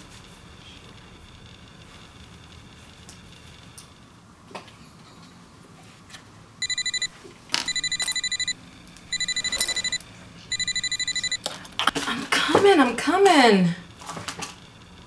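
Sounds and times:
digital alarm beeping: 6.6 - 7.1, 7.7 - 11.4.

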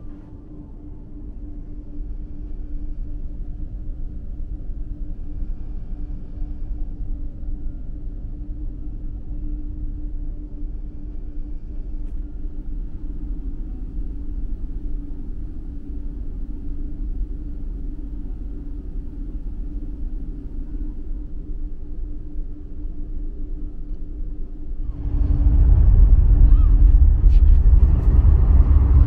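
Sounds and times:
ferry engines rumbling: 24.8 - 29.0.

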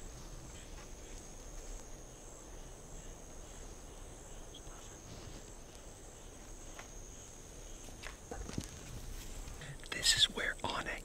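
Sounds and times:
faint outdoor background noise: 0.0 - 11.0
insects buzzing chorus: 0.0 - 11.0.

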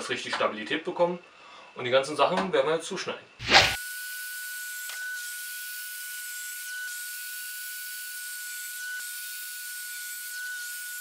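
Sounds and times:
mitre saw whining through wood: 3.6 - 11.0.

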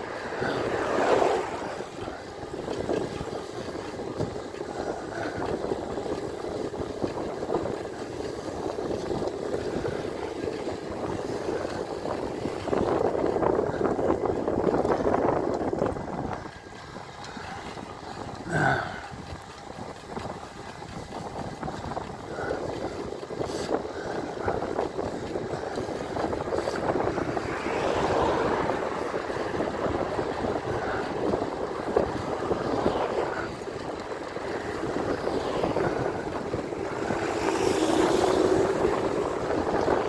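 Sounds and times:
car overtaking: 0.0 - 7.6, 24.4 - 40.0
wind rushing over microphone: 0.0 - 40.0.

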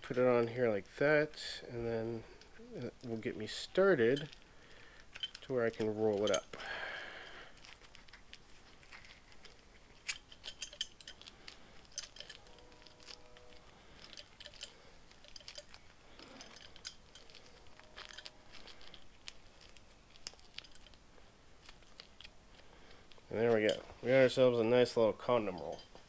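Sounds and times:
rubber sleeve clicks and crackles: 2.3 - 24.1
faint rubber squeaks: 7.5 - 26.0.

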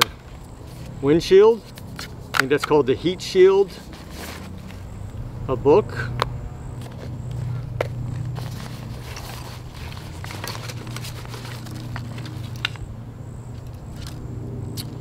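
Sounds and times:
steady low hum: 0.0 - 15.0
nylon sack rustling: 3.7 - 5.0, 6.8 - 12.6
packaging crinkling: 8.0 - 12.8.

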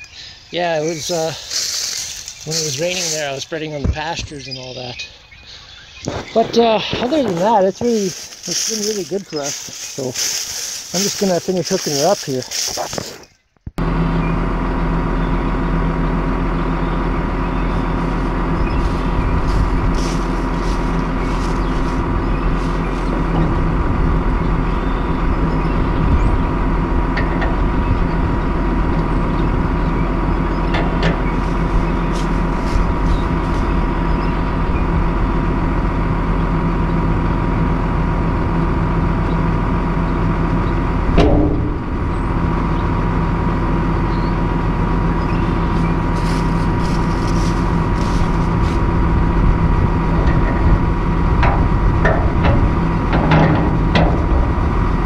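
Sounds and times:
tractor diesel engine idling: 0.0 - 55.0
short thump: 41.1 - 42.0.

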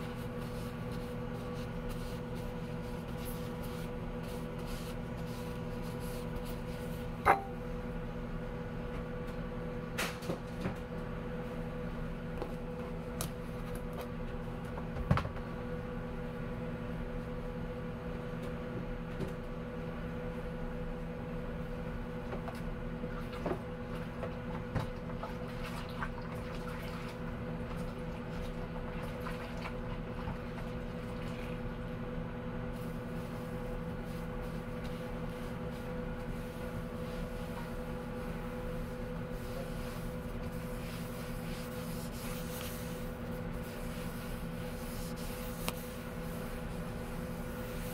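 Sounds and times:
sponge scrubbing dishes: 0.0 - 7.5, 34.2 - 47.9
microwave oven humming: 0.0 - 47.9
dishes clinking: 7.3 - 7.6.

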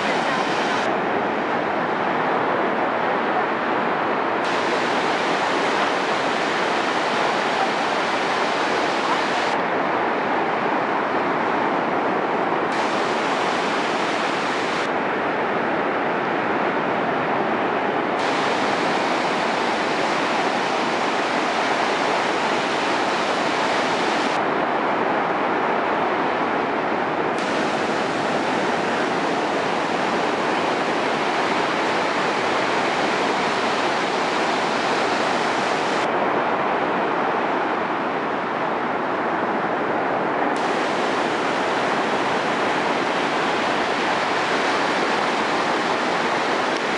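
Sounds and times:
ocean waves breaking: 0.0 - 2.4, 4.3 - 15.1, 18.0 - 24.5, 26.4 - 36.1, 40.6 - 46.9.

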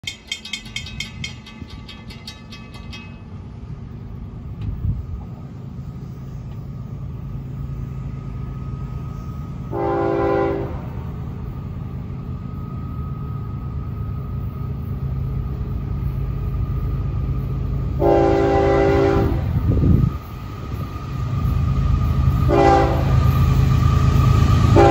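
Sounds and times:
low rumble of approaching train: 0.0 - 24.9
locomotive air horn blasts: 9.7 - 11.0, 18.0 - 19.6, 22.5 - 23.3.

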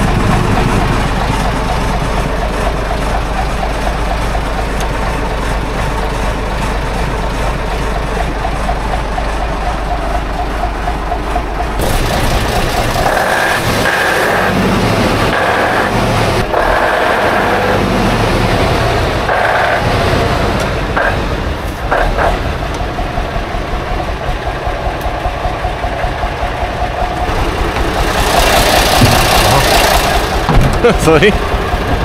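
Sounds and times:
diesel engine running: 0.0 - 32.0.

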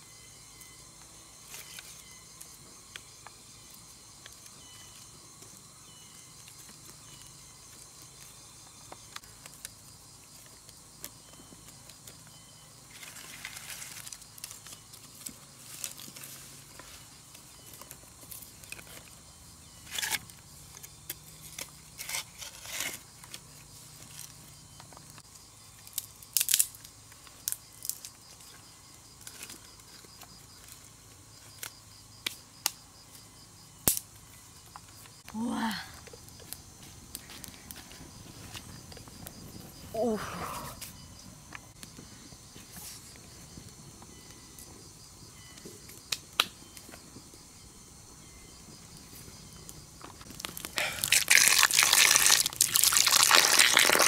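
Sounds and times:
bamboo sticks clattering and cracking: 12.9 - 19.2, 19.8 - 33.2, 33.8 - 39.5, 49.7 - 54.0.

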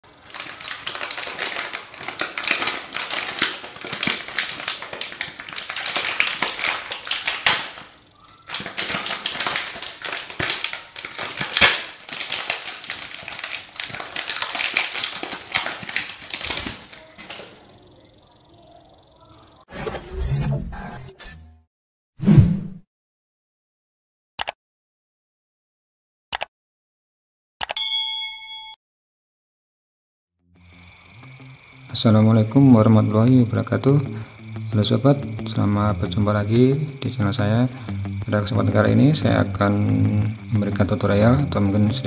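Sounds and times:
plastic bag crinkling: 0.0 - 17.8.

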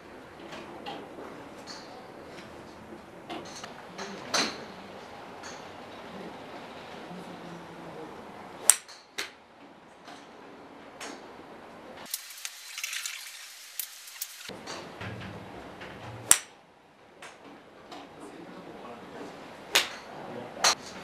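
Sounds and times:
golf club striking ball: 16.2 - 16.5, 19.7 - 20.0.

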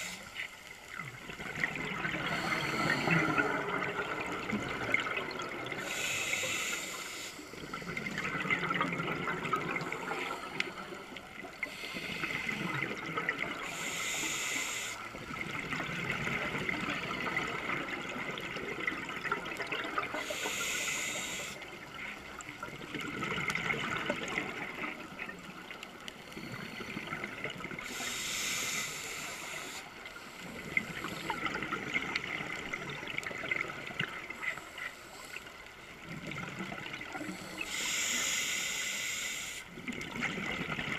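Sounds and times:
bubbling exhale: 1.4 - 15.0
diver breathing through regulator: 2.2 - 3.7, 5.8 - 8.0, 9.8 - 12.7, 13.6 - 15.2, 20.2 - 21.6, 27.8 - 31.6, 37.2 - 39.7.

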